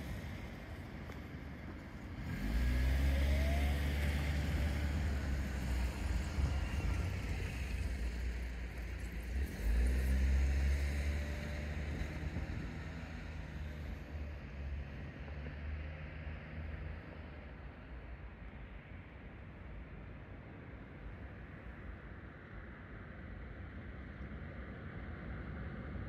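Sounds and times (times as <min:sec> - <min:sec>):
vehicle engines accelerating: 0:00.0 - 0:18.0.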